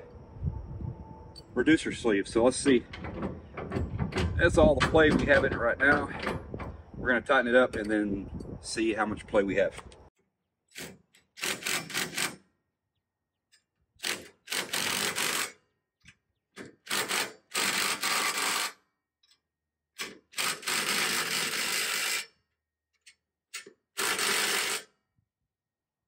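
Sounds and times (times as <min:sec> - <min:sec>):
cordless impact driver running: 0:24.0 - 0:24.9.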